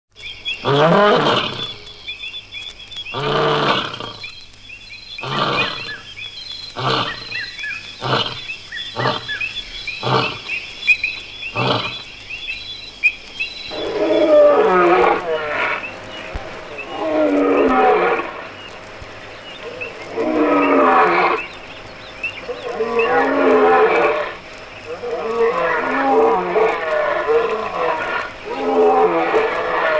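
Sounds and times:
high chirping: 0.3 - 14.3
lion roaring: 5.2 - 6.0, 6.8 - 9.4, 10.0 - 10.5, 13.7 - 15.9, 16.8 - 18.4, 22.5 - 29.9
wavering moaning calls: 5.2 - 12.2, 13.4 - 29.9.

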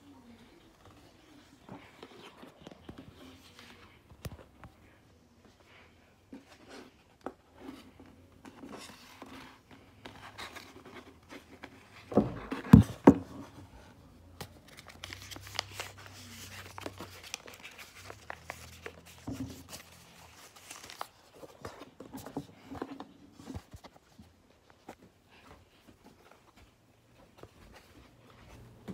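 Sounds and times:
paper rustling and crinkling: 14.4 - 28.7.

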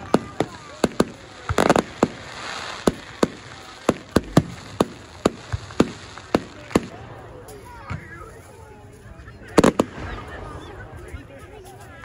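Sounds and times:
fireworks bangs: 0.0 - 7.0, 9.5 - 10.7
fireworks crackling: 0.0 - 12.0.

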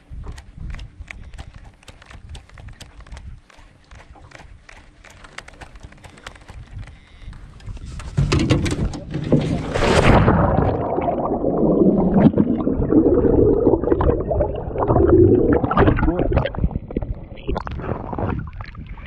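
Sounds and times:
water splashing: 8.1 - 19.0
underwater gurgling and bubbling: 8.3 - 19.0
person splashing into water: 9.5 - 16.6.

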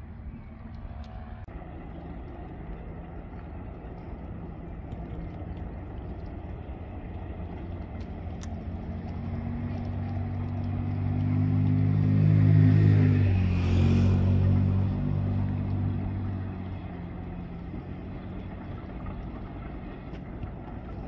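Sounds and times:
engine hum passing by: 0.0 - 21.0.

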